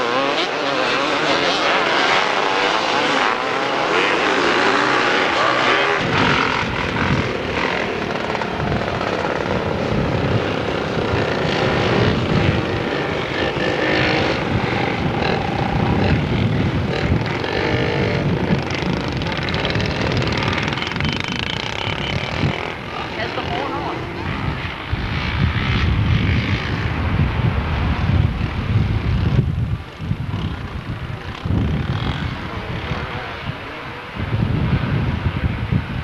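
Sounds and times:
off-road engines revving: 0:00.0 - 0:29.4, 0:30.2 - 0:34.4.

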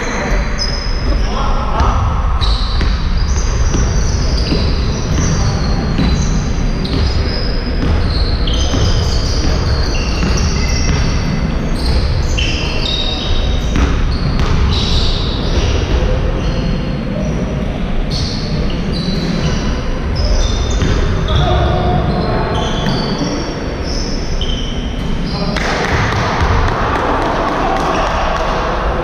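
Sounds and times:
sneakers squeaking on floor: 0:00.0 - 0:28.3
basketball dribbling: 0:01.8 - 0:12.3, 0:13.6 - 0:16.1, 0:25.6 - 0:28.1.

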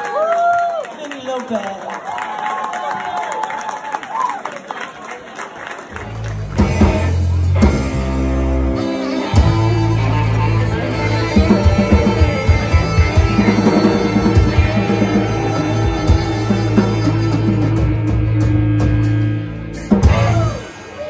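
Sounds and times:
live rock band playing: 0:05.9 - 0:21.0.

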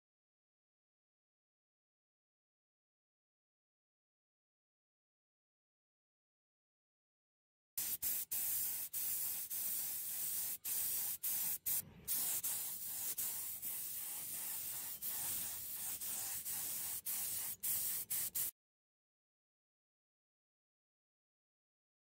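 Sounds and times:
spray paint hissing: 0:07.8 - 0:18.6.

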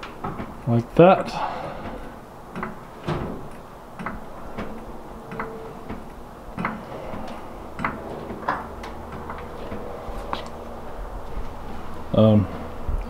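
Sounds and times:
jack clicks and knocks: 0:01.8 - 0:10.5.

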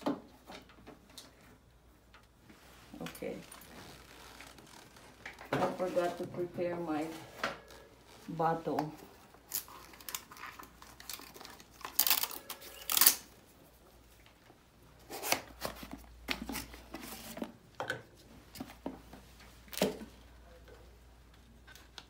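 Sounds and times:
plastic packaging rustling: 0:09.0 - 0:13.4.

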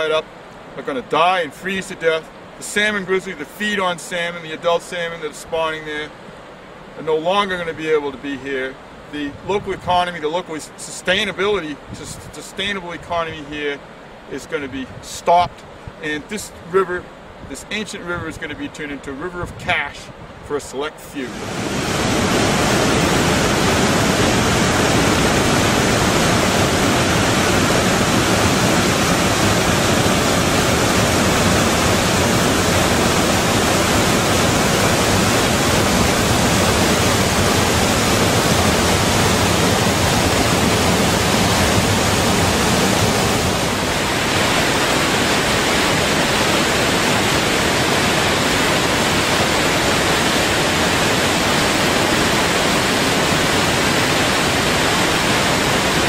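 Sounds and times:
water rushing over rock: 0:21.2 - 0:56.0.

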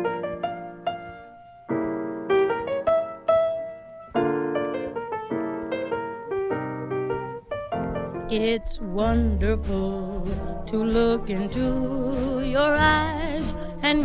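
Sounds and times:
jazz piano playing: 0:00.0 - 0:14.0.

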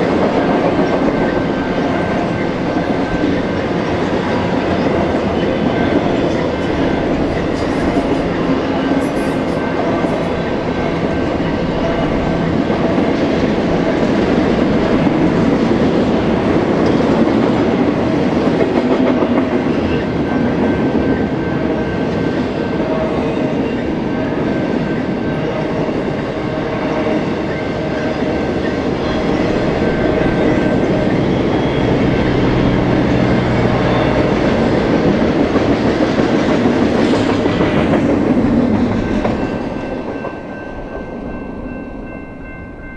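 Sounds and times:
freight train wheels rumbling on rail: 0:00.0 - 0:42.9.

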